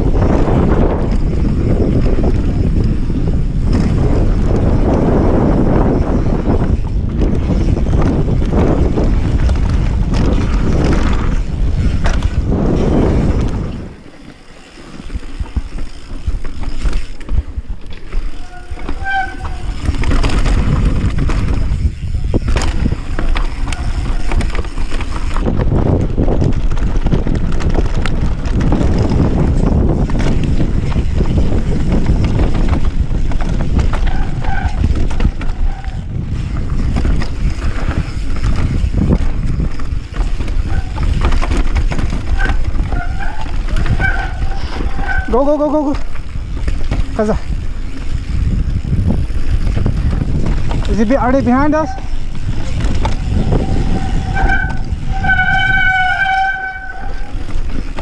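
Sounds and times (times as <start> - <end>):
bike rattling: 0.0 - 58.0
bike tyres rolling over rocks: 0.0 - 58.0
wind buffeting microphone: 0.0 - 58.0.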